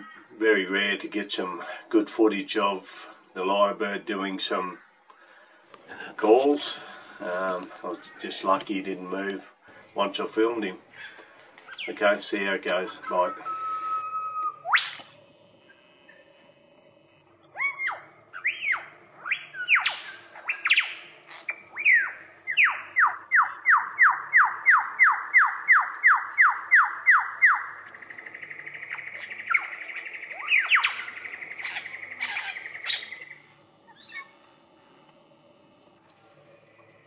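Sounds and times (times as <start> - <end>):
buzzing bird trill: 6.0 - 37.0
lyrebird whistled calls: 10.7 - 12.0, 12.8 - 16.6, 17.4 - 34.4
downward-sweeping whistles: 12.9 - 27.7.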